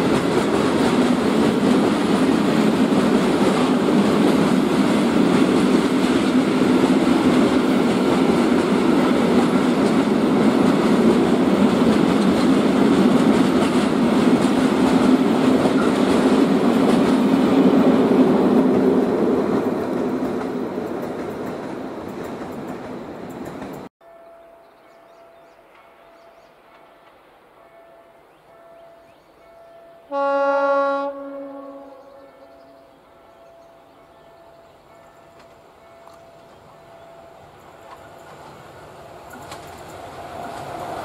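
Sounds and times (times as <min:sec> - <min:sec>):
freight train wheels rumbling: 0:00.0 - 0:23.9, 0:33.4 - 0:41.0.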